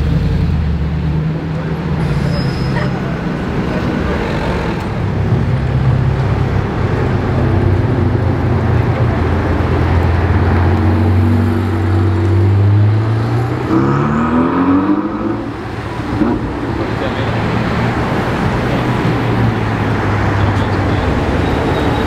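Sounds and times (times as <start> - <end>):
sports car engine revving: 9.7 - 19.0.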